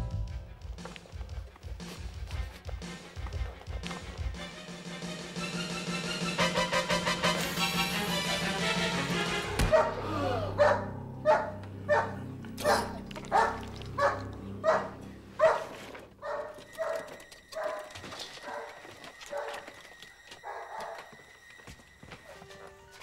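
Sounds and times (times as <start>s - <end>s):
dog barking: 9.6s - 19.7s, 20.4s - 21.2s.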